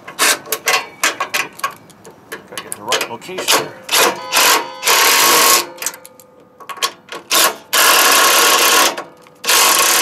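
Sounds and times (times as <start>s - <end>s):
impact wrench bursts: 7.3s - 10.0s.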